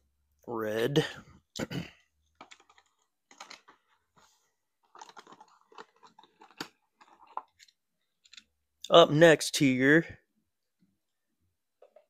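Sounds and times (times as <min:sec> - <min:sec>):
toy cars clicking and rustling: 0:02.3 - 0:04.0, 0:04.8 - 0:08.5.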